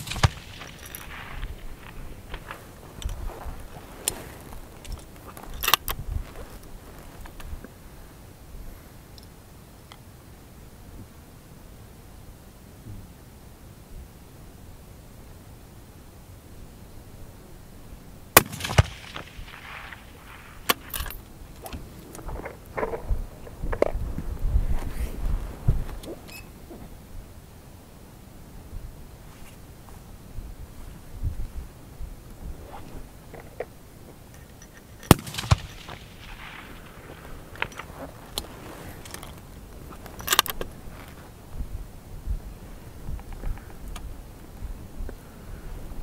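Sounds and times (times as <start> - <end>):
rifle shots: 0.0 - 2.5, 18.4 - 21.2, 35.0 - 37.8
distant rifle shots: 0.0 - 2.6, 18.4 - 20.9, 35.1 - 37.7
fainter echo crack: 18.4 - 20.9, 35.1 - 37.8.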